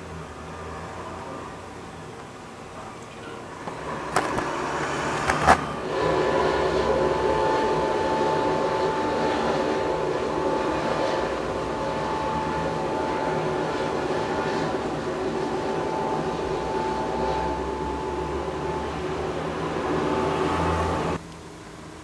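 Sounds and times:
lorry engines rumbling: 0:00.0 - 0:21.2
high whine: 0:00.0 - 0:22.0.

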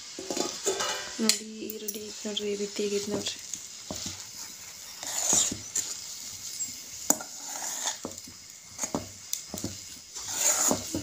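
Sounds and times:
spoon stirring and scraping pan: 0:00.0 - 0:11.0.

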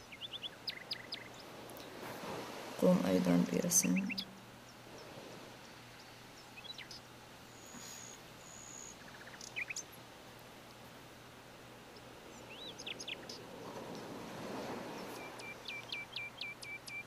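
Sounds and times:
small bird chirping: 0:00.0 - 0:01.9, 0:05.9 - 0:09.9, 0:12.4 - 0:13.4.

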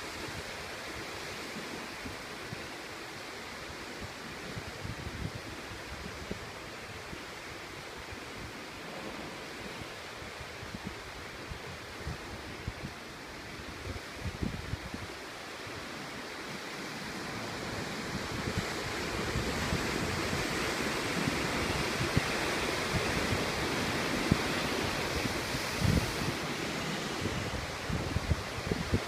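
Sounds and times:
wind buffeting microphone: 0:08.3 - 0:15.2, 0:17.3 - 0:29.0
surf breaking over rocks: 0:16.9 - 0:29.0.

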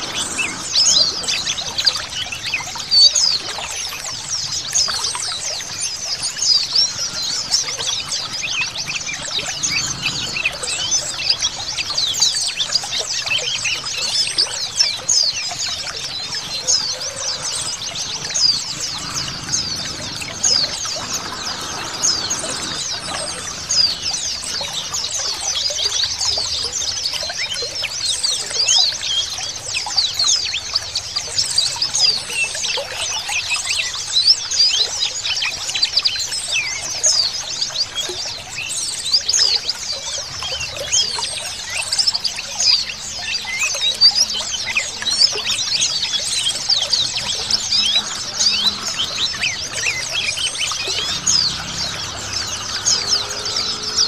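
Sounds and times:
birds chirping in chorus: 0:00.0 - 0:14.3, 0:14.9 - 0:26.2, 0:44.2 - 0:54.0.

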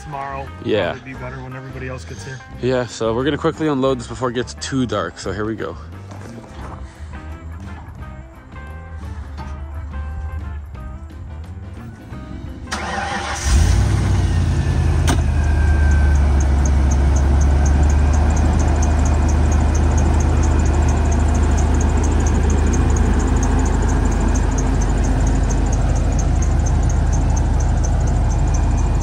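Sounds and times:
car engine starting and idling: 0:05.9 - 0:29.0
fast high ticking: 0:15.4 - 0:29.0.

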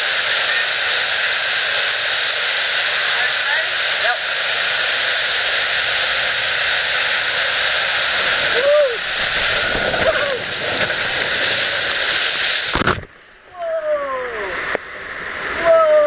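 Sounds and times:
rushing water in slide: 0:00.0 - 0:16.0
rider whooping: 0:08.3 - 0:10.8.

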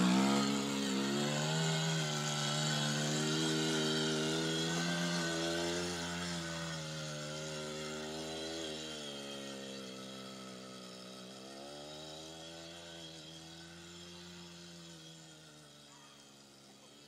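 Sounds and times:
quad bike engine running: 0:00.0 - 0:17.0.

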